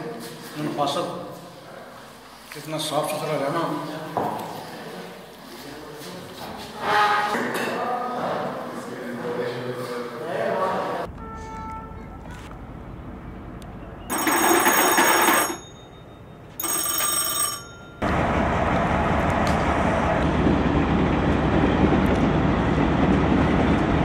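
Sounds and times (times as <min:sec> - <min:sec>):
electric bell ringing: 0:14.1 - 0:18.1
diesel locomotive engine running: 0:18.0 - 0:24.0.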